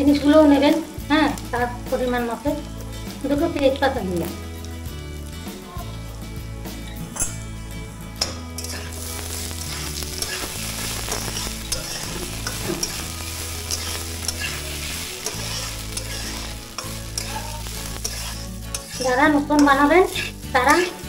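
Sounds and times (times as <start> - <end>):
rice sizzling in pan: 0.0 - 21.0
metal spatula scraping pan: 8.2 - 21.0.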